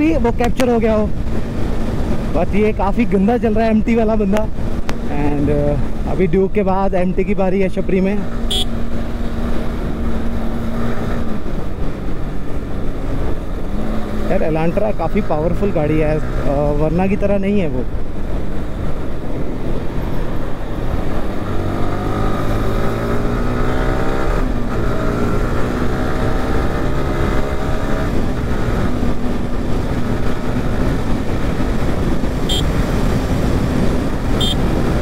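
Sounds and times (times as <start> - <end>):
road and wind noise: 0.0 - 35.0
motorcycle engine accelerating: 18.1 - 35.0.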